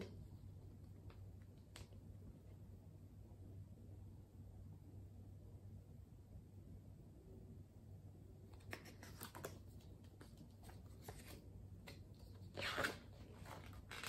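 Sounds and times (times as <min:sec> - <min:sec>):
book pages rustling: 0:08.5 - 0:14.0.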